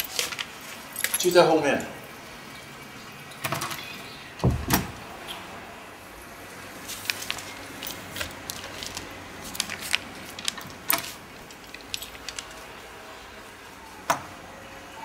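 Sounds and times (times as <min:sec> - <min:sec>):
handling clicks and rattles: 0:07.0 - 0:12.7.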